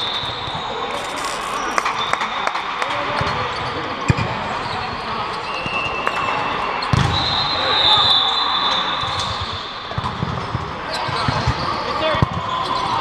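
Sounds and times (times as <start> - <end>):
shoe squeak: 0.0 - 2.6
background noise: 0.0 - 13.0.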